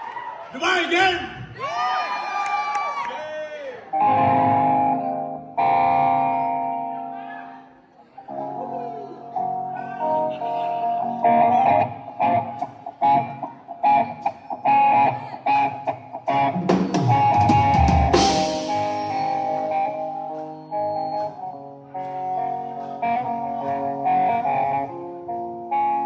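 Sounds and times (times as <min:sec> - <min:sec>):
electric guitar melody: 0:04.0 - 0:26.0
drum kit: 0:15.5 - 0:21.4.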